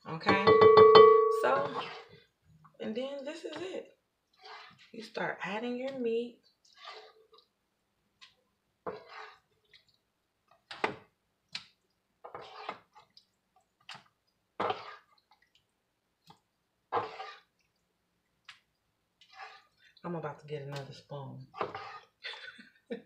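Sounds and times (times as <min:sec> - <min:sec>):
spoon tapping foil pan: 0:00.3 - 0:01.7
wet scoops and plops of meat: 0:08.2 - 0:20.0.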